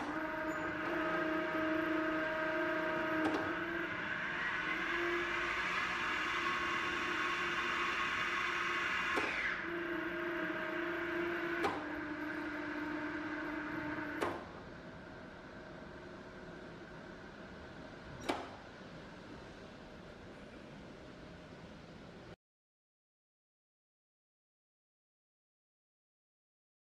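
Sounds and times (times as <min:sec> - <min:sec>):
lathe motor whining: 0:00.0 - 0:14.5.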